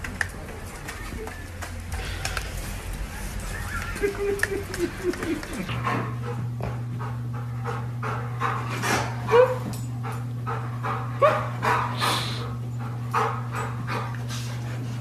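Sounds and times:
low electrical hum: 0:00.0 - 0:15.0
dog panting: 0:04.7 - 0:15.0
dog whining: 0:08.8 - 0:09.8.

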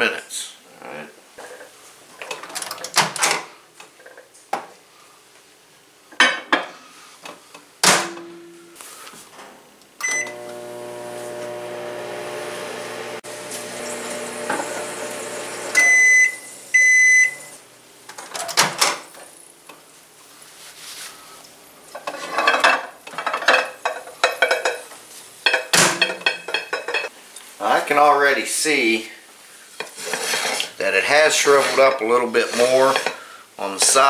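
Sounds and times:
microwave beeps: 0:10.0 - 0:10.5, 0:15.7 - 0:17.6
microwave humming: 0:10.0 - 0:17.6.

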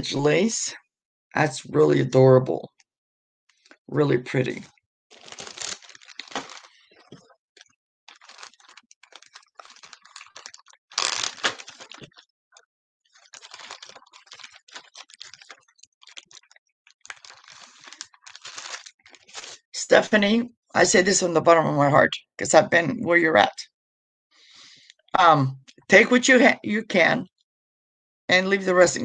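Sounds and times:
packing material crinkling: 0:05.1 - 0:19.7.

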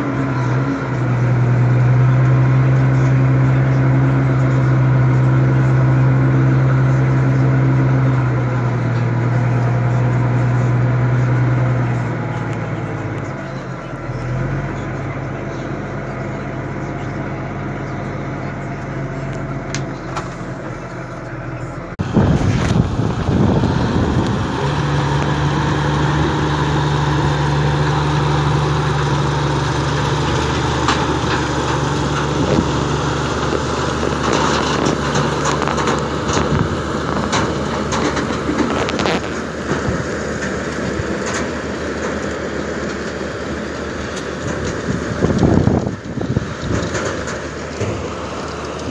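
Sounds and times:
tractor engine running: 0:00.0 - 0:48.9
harvester clatter of soil and potatoes: 0:22.0 - 0:48.9.

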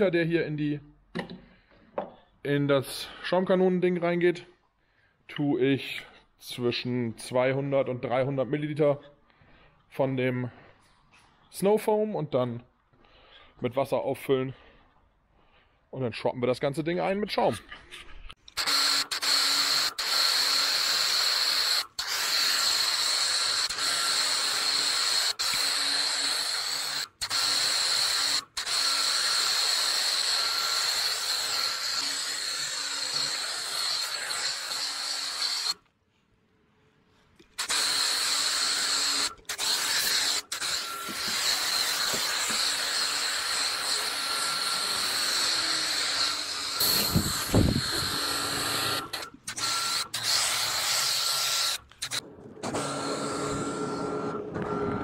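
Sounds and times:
pressure washer spraying foam: 0:18.6 - 0:35.8, 0:37.6 - 0:53.7.

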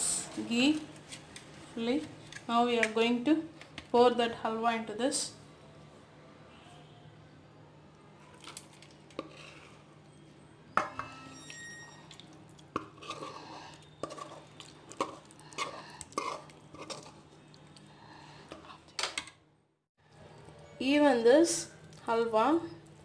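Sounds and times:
metal spatula scraping cookware: 0:10.8 - 0:12.2, 0:12.8 - 0:17.2.

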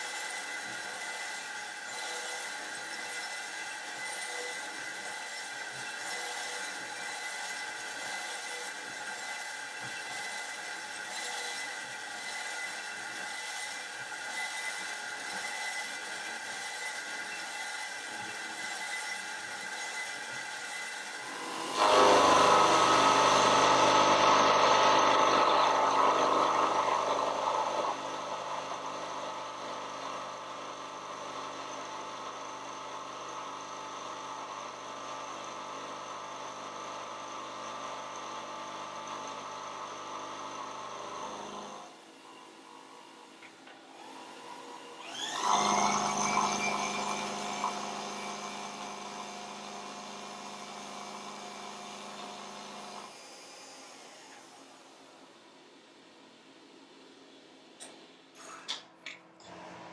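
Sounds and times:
milling machine cutting metal: 0:00.0 - 0:54.9
motor spinning up with whine: 0:21.2 - 0:33.9, 0:36.4 - 0:55.1.

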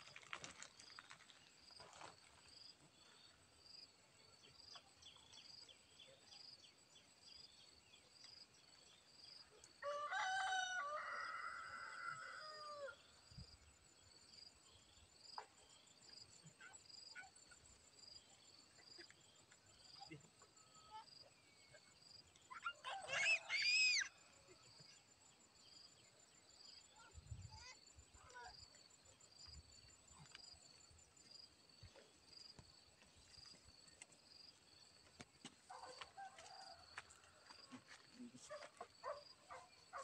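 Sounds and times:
rooster crowing: 0:09.8 - 0:13.0.

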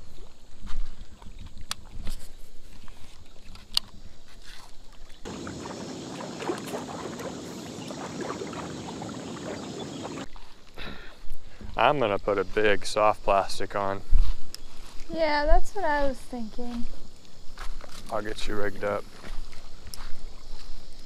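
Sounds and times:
footsteps on stony ground: 0:00.1 - 0:07.8, 0:14.0 - 0:18.1, 0:19.0 - 0:21.0
river water washing over rocks: 0:05.3 - 0:10.3.

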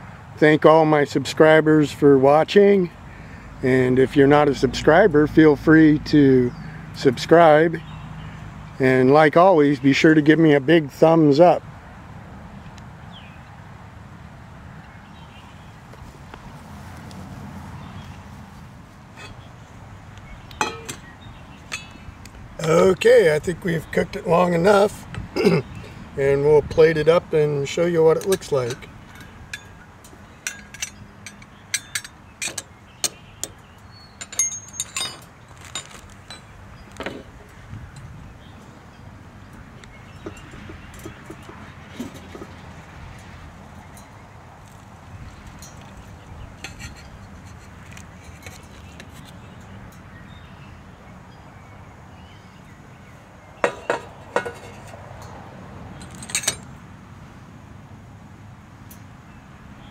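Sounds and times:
metal cup and plate clinking: 0:20.6 - 0:21.1, 0:28.2 - 0:33.2, 0:34.2 - 0:37.3, 0:40.2 - 0:42.6, 0:53.6 - 0:55.4
wind rumble on microphone: 0:35.7 - 0:49.7
metal cookware clicks and taps: 0:53.6 - 0:55.0.

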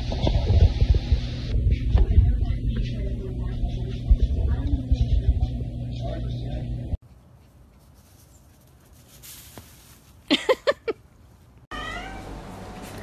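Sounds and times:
steady background hum: 0:00.0 - 0:07.7
puppy yipping: 0:11.7 - 0:12.3.

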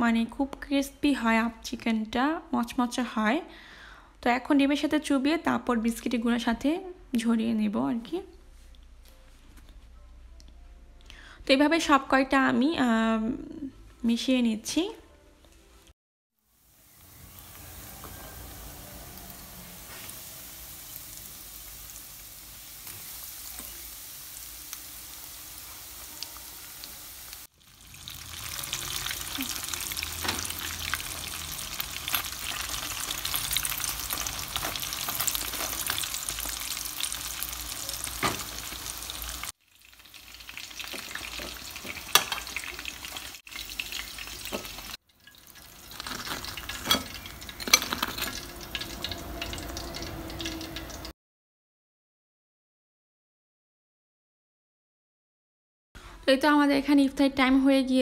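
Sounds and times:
chicken deep-frying in oil: 0:16.4 - 0:51.2.

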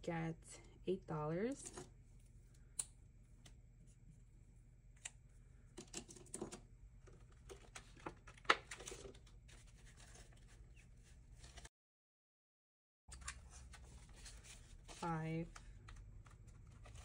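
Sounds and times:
paper pages rustling: 0:07.2 - 0:11.7, 0:13.4 - 0:17.0.

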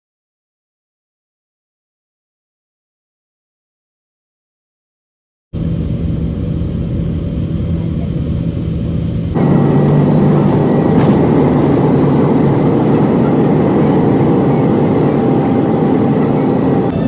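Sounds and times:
jet engines roaring in cabin: 0:05.6 - 0:17.0.

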